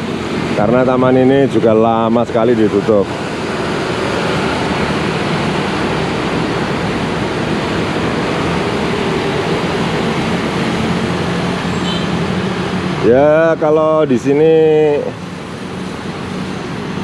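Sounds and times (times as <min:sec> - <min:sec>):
road traffic rushing: 0:00.0 - 0:17.0.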